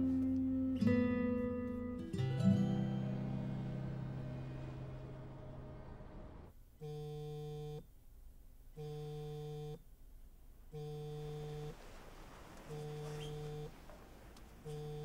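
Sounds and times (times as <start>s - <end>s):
music: 0.0s - 6.5s.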